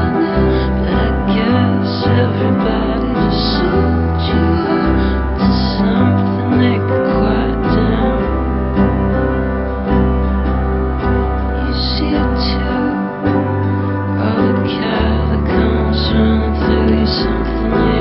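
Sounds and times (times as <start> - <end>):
soft sung vocal: 0.0 - 9.2, 11.4 - 18.0
bass line: 0.0 - 18.0
keyboard chords: 0.0 - 18.0.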